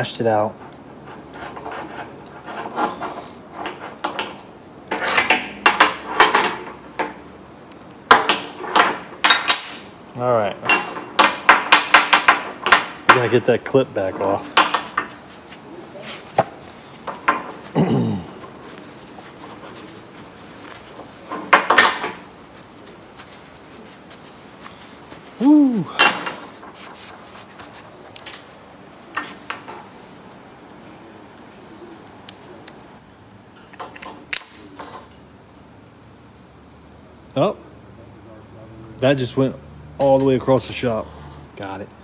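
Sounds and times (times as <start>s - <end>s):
metal parts clinking on concrete: 2.6s - 7.2s, 8.1s - 9.9s, 10.6s - 13.4s, 20.7s - 22.3s, 25.9s - 26.5s, 33.6s - 36.6s.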